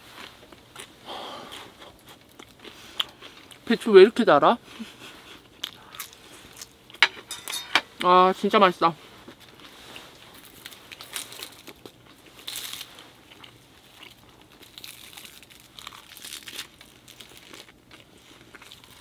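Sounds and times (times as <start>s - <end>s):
rustling and crinkling of wrap: 8.3s - 19.0s.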